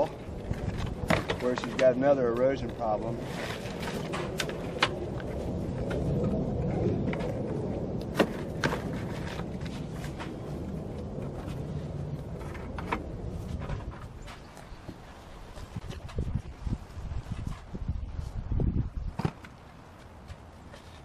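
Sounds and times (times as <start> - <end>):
low rumble: 0.0 - 19.2.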